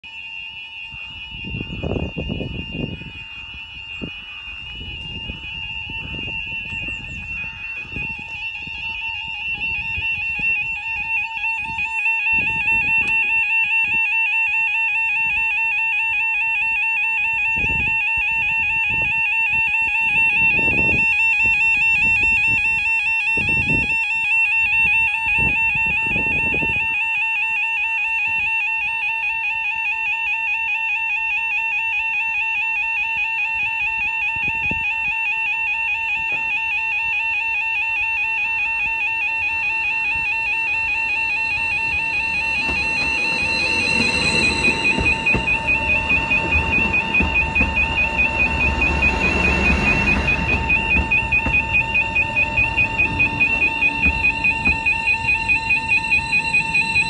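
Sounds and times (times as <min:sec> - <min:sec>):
warbling crossing alarm: 0:00.0 - 0:57.0
low rumbles: 0:40.2 - 0:57.0.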